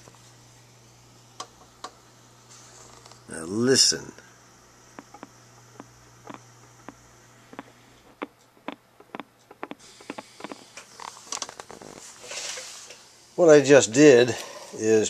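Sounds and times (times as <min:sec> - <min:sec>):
loudspeaker clicks: 0:05.0 - 0:10.6.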